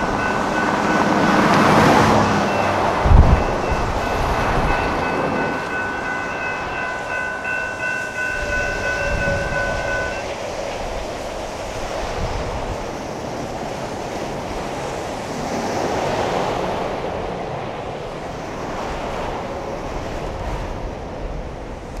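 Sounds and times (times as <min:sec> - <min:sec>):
car passing: 0:00.0 - 0:10.2
road traffic rushing: 0:00.0 - 0:19.6
wind buffeting microphone: 0:00.0 - 0:22.0.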